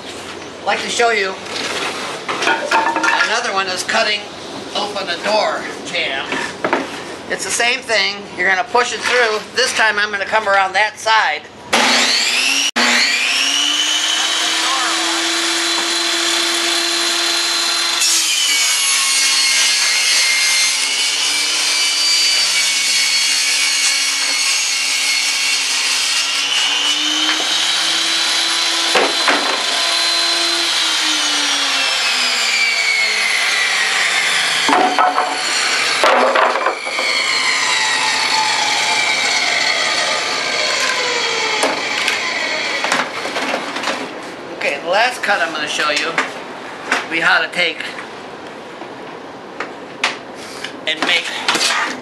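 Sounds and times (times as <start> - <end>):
table saw cutting wood: 11.7 - 44.0.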